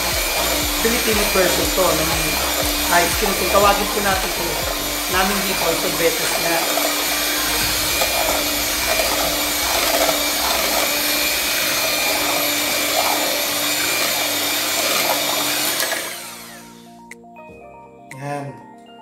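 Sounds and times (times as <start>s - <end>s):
electric hand mixer running: 0.0s - 17.1s.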